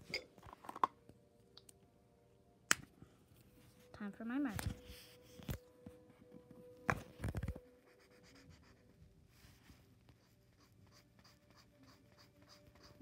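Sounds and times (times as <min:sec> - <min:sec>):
marker drawing on paper: 0:07.8 - 0:13.0.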